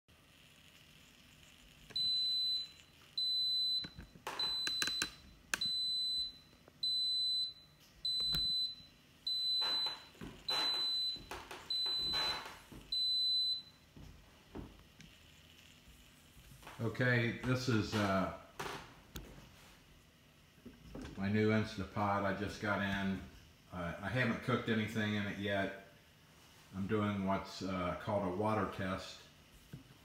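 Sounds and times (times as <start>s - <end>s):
pressure cooker beeping: 1.9s - 13.8s.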